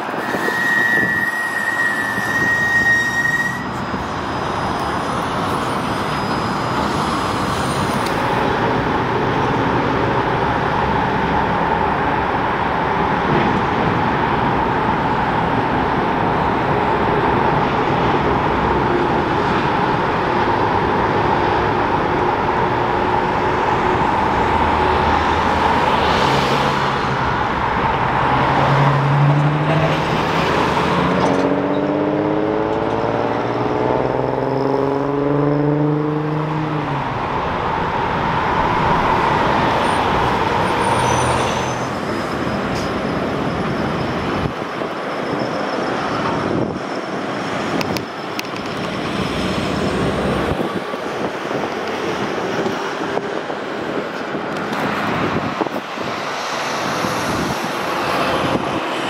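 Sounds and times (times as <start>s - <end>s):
road traffic passing: 0.0s - 59.0s
vehicle accelerating: 23.7s - 38.0s.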